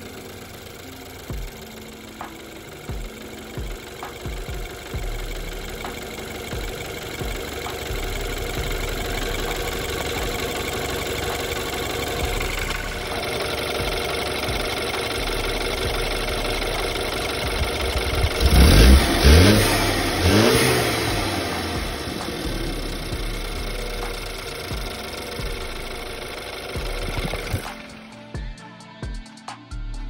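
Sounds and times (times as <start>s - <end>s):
car engine idling and revving: 0.0s - 28.5s.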